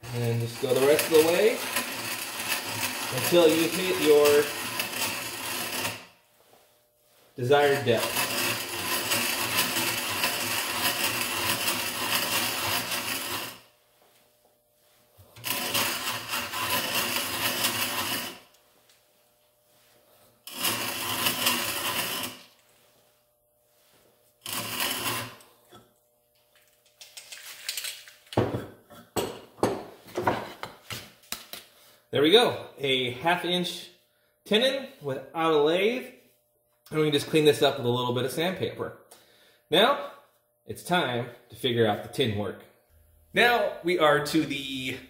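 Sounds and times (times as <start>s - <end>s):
hand auger shaving wood: 0.0s - 6.2s, 7.4s - 13.7s, 15.4s - 18.5s, 20.4s - 22.6s, 24.4s - 25.6s.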